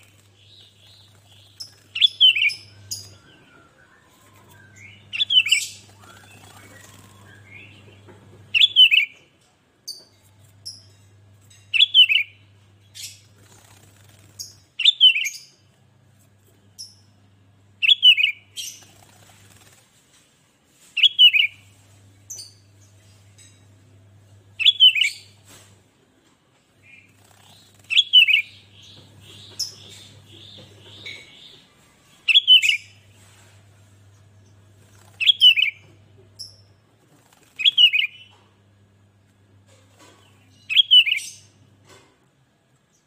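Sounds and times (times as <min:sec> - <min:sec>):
bird chattering notes: 0:00.0 - 0:03.4.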